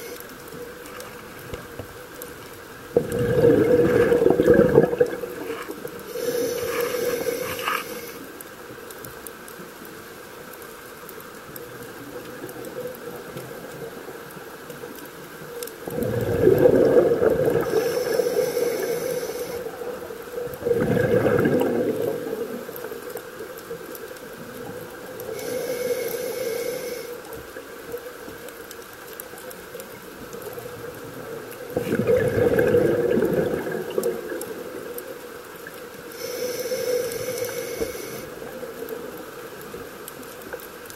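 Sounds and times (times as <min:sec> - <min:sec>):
regulator bubbling exhales: 0:02.9 - 0:08.2, 0:15.9 - 0:19.7, 0:20.5 - 0:22.7, 0:31.7 - 0:34.6
hissing regulator inhale: 0:05.4 - 0:08.3, 0:16.0 - 0:19.9, 0:25.2 - 0:27.3, 0:36.0 - 0:38.5.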